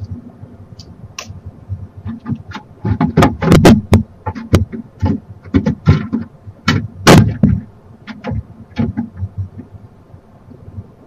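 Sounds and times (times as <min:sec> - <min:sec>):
owl thumping on wood: 0:02.0 - 0:09.7
talons scratching wood: 0:02.0 - 0:09.8.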